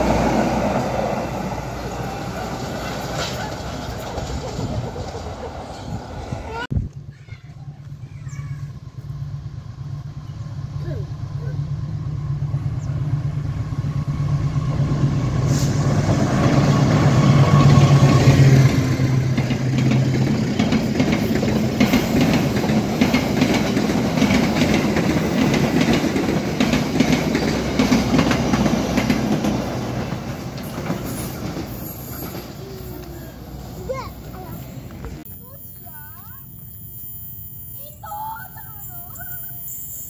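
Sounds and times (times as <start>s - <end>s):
diesel locomotive engine droning: 0.0s - 40.0s
train wheels clattering over rail joints: 2.4s - 6.3s, 15.3s - 33.2s.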